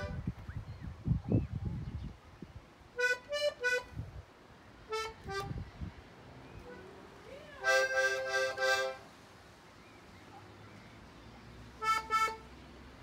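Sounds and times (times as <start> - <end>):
button accordion chords: 3.0 - 3.9, 4.9 - 5.6, 7.6 - 9.0, 11.8 - 12.4.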